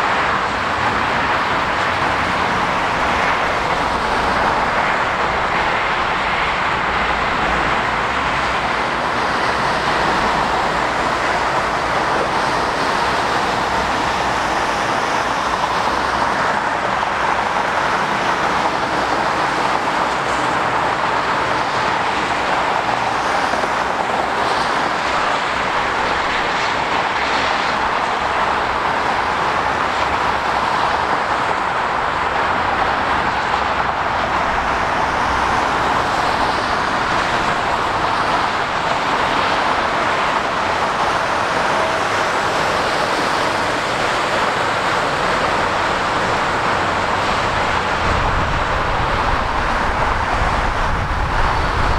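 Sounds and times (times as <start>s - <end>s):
motorway traffic rushing: 0.0s - 51.9s
tyres hissing on wet road: 0.0s - 51.9s.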